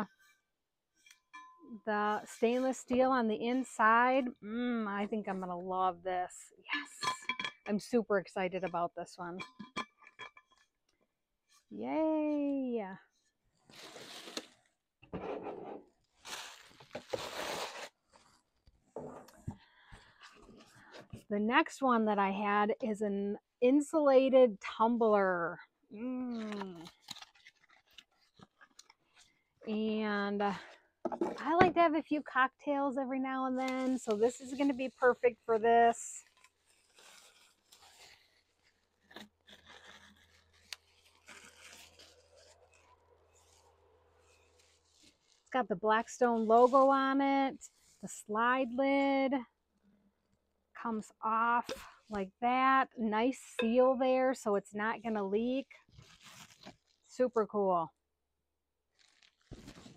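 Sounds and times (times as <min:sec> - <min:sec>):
packaging rustling and scraping: 0:13.6 - 0:14.8, 0:16.0 - 0:21.2, 0:26.4 - 0:29.4, 0:33.8 - 0:45.6, 0:55.7 - 0:57.1, 0:58.9 - 0:59.9.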